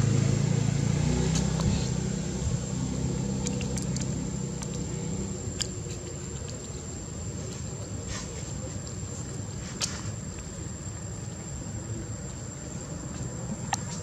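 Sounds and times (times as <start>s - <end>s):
vehicle engine humming: 0.0s - 8.0s.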